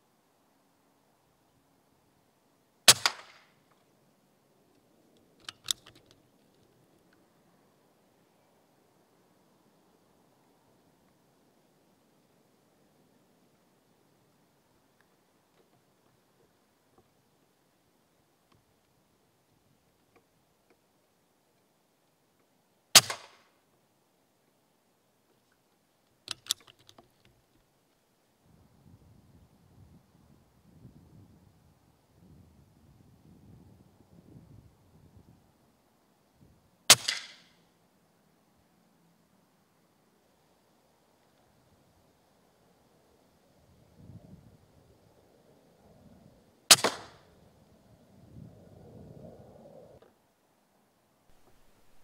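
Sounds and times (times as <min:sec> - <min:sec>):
air rifle shot crack: 0:02.9 - 0:03.5, 0:23.0 - 0:23.4, 0:36.9 - 0:37.5, 0:46.7 - 0:47.3
small sharp clicks: 0:05.1 - 0:07.2, 0:25.5 - 0:27.6, 0:36.9 - 0:37.6
sharp clicks: 0:05.2 - 0:06.2, 0:26.3 - 0:27.4.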